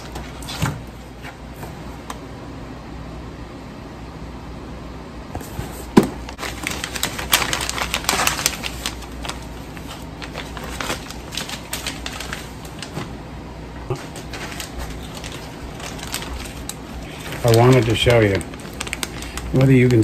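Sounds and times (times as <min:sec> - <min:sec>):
plastic packaging crinkling: 0:06.2 - 0:13.2, 0:13.9 - 0:20.0.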